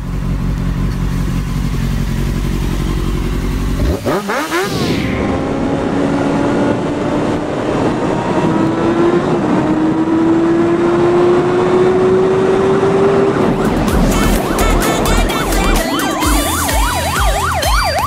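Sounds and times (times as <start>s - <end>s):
motorcycle engine accelerating: 0.0s - 18.0s
wailing siren-like sound: 3.9s - 8.3s, 11.8s - 18.0s
music with low beat: 13.5s - 18.0s.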